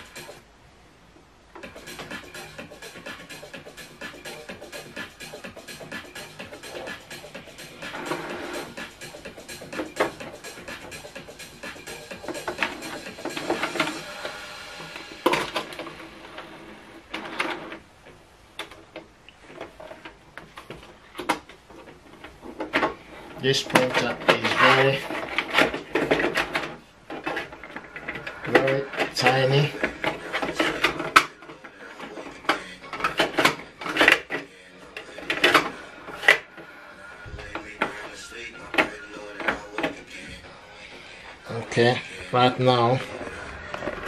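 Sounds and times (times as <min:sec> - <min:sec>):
printer mechanism whirring and clicking: 0:01.6 - 0:36.8
paper scraping plastic tray: 0:06.6 - 0:11.2, 0:11.8 - 0:17.9, 0:19.4 - 0:40.2.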